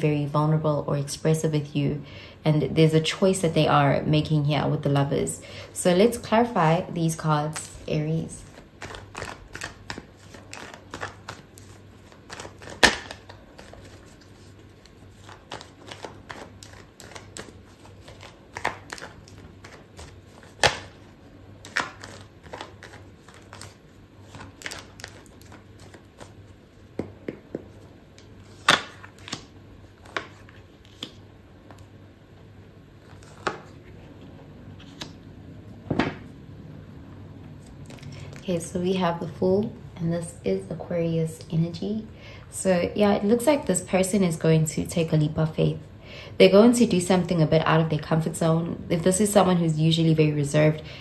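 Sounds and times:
cards being shuffled: 7.5 - 31.9, 33.0 - 35.2.

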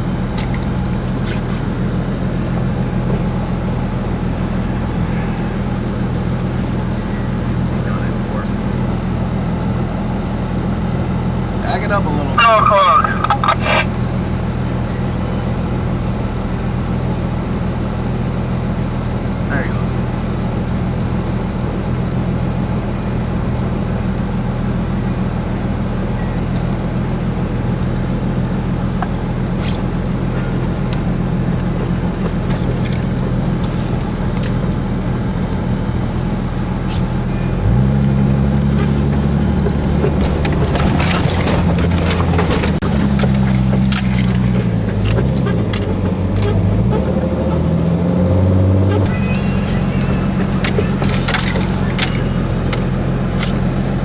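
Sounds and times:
engine running: 0.0 - 54.0
engine revving: 36.6 - 54.0
rattling clicks: 39.8 - 46.7, 50.4 - 53.6.

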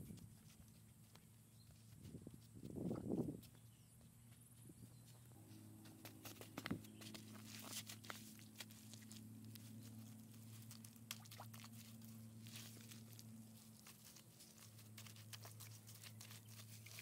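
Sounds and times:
steady low hum: 0.0 - 17.0
mud rustling and tapping: 5.8 - 17.0.

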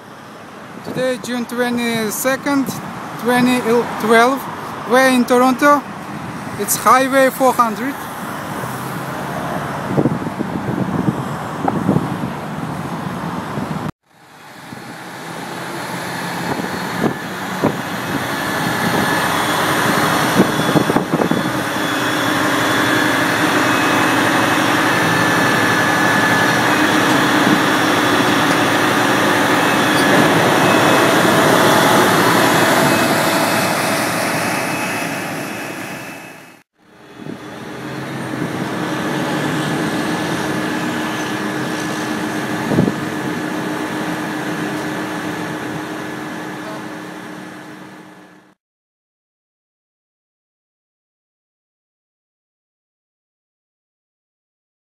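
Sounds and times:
highway traffic: 0.0 - 48.6
truck engine driving winch: 8.0 - 48.6.

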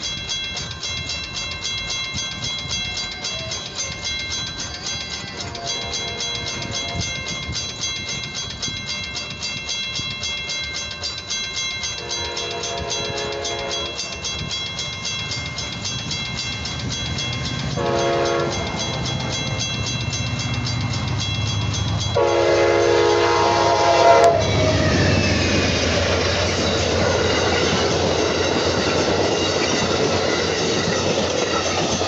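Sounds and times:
railroad crossing bell ringing: 0.0 - 32.0
train rumbling past: 0.0 - 32.0
train horn blasts: 12.0 - 14.0, 17.8 - 18.7, 22.2 - 24.8.

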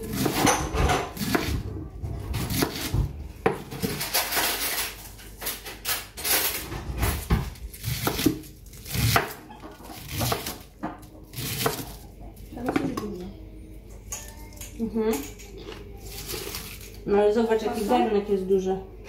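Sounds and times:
knife chopping on wooden board: 2.3 - 3.9, 7.3 - 12.0.

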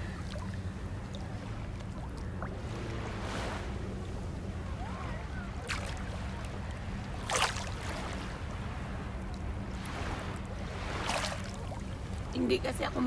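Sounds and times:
seawater lapping and splashing: 0.0 - 13.0
wind rumbling on microphone: 0.0 - 13.0.

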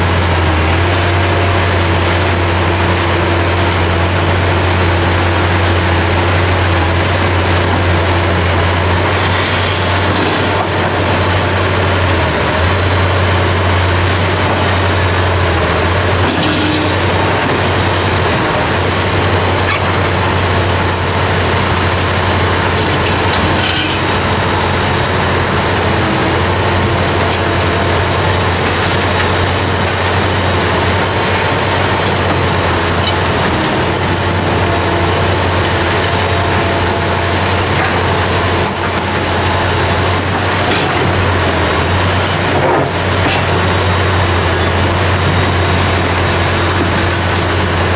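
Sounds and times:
excavator diesel engine drone: 0.0 - 47.9.

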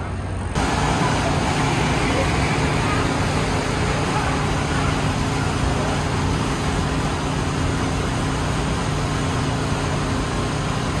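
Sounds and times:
cars driving past: 0.1 - 8.6.

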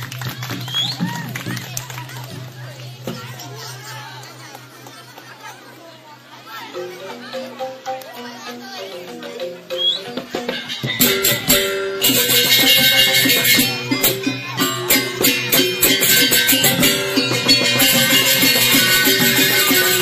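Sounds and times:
bamboo xylophone ensemble: 6.4 - 20.0.

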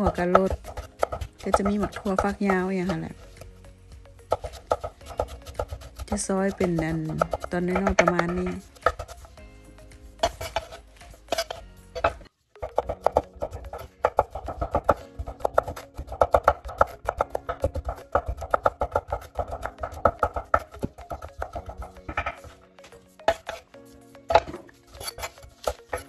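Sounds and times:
knife chopping on wooden board: 0.0 - 3.0, 4.3 - 9.2, 10.2 - 22.5
background music: 0.0 - 26.0.

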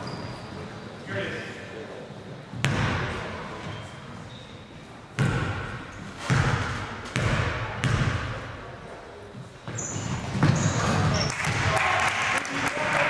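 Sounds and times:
basketball bouncing on gym floor: 2.6 - 3.1, 5.2 - 8.4, 9.7 - 11.7.

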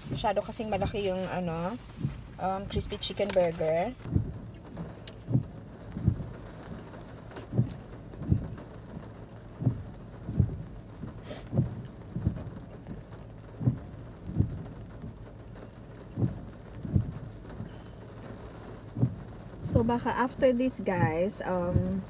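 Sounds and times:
rain on a car: 0.0 - 22.0
windscreen wipers thumping: 0.0 - 22.0
brief hiss: 7.3 - 7.7, 11.2 - 11.6.

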